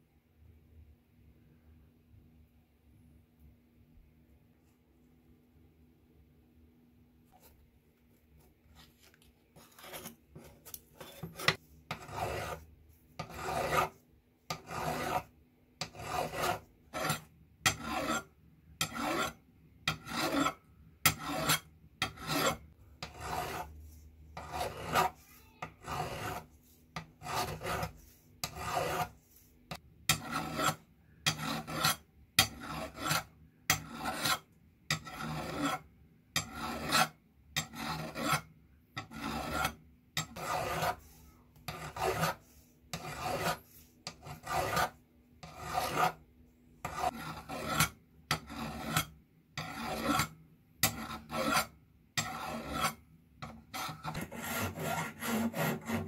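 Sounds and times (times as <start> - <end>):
hand file rasping on steel: 9.6 - 23.8, 24.4 - 35.8, 36.4 - 46.2, 46.8 - 56.0.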